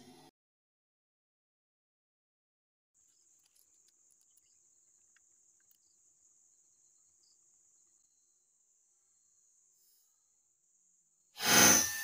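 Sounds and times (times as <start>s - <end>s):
insects chirring: 3.0s - 12.0s.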